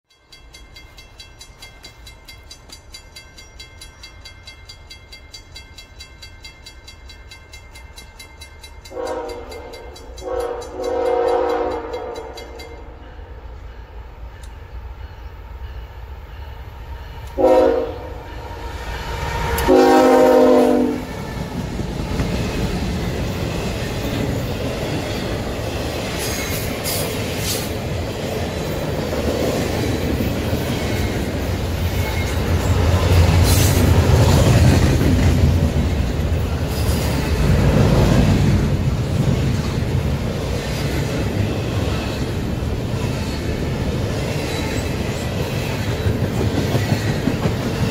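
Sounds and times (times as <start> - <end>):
train rumbling past: 0.3 - 47.9
locomotive horn blasts: 8.9 - 12.4, 17.3 - 18.5, 19.5 - 21.2.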